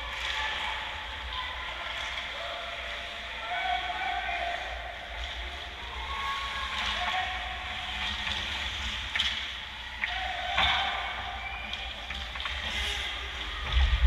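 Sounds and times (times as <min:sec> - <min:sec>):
distant voices: 0:00.0 - 0:14.0
hockey sticks knocking puck: 0:08.0 - 0:13.0.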